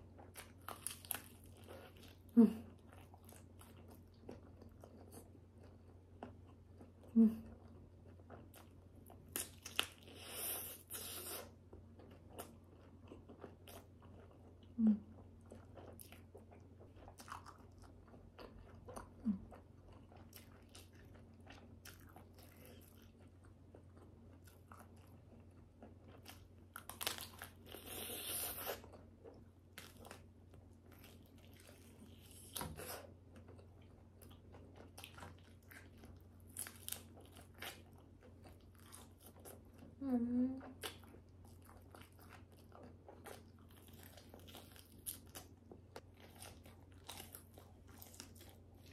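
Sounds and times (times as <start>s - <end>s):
person chewing and biting: 15.4s - 39.9s, 40.7s - 48.9s.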